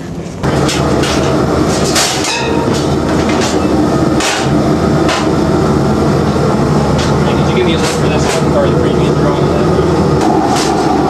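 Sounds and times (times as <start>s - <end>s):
kitchen machinery humming: 0.4s - 11.0s
metal lids and pans clattering: 0.6s - 5.3s.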